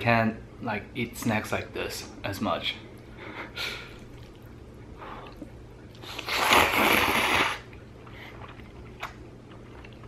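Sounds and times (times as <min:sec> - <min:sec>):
person slurping noodles: 0:06.0 - 0:07.7.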